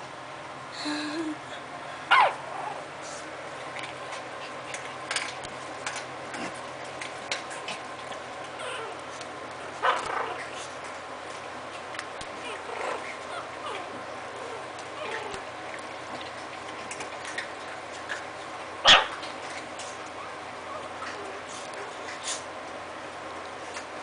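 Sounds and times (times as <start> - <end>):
puppy yelp: 2.1 - 2.4, 18.8 - 19.2
puppies yipping and whimpering: 8.6 - 9.0, 12.4 - 15.5.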